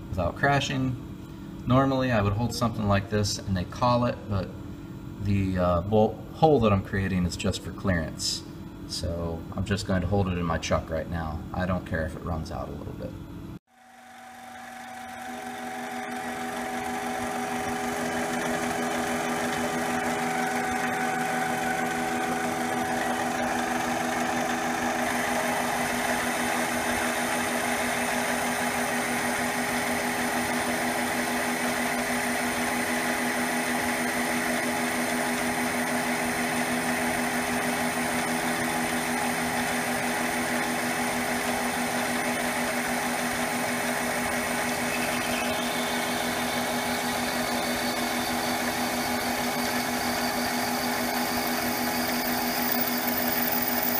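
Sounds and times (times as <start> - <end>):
lathe whining: 14.0 - 53.9
end mill cutting aluminum: 14.8 - 53.9.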